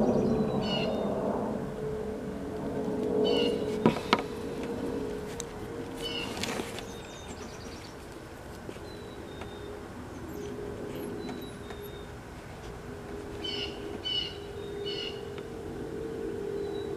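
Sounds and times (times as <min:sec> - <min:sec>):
bird chirps: 0:00.0 - 0:01.0, 0:03.2 - 0:03.8, 0:06.0 - 0:08.0, 0:08.8 - 0:12.2, 0:13.4 - 0:15.4
faint steady hum: 0:00.0 - 0:16.9.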